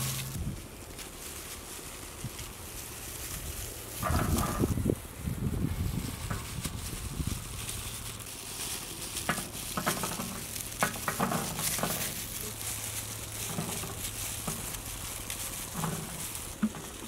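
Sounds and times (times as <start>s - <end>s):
plastic gloves crinkling: 0.0s - 17.0s
seeds pattering on metal tray: 6.1s - 17.0s.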